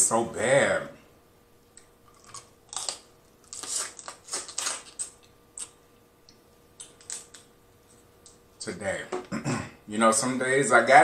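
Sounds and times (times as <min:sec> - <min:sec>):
crab shells cracking: 0:02.1 - 0:05.8, 0:06.8 - 0:07.5.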